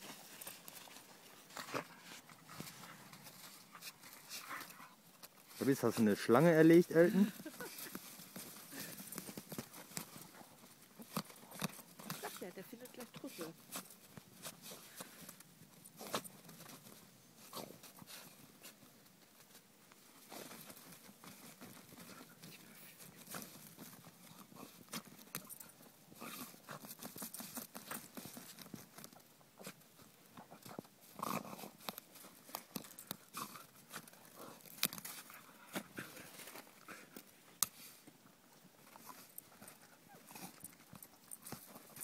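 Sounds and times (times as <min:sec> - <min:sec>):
dog scratching at soil: 0:00.1 - 0:15.2, 0:20.2 - 0:36.7.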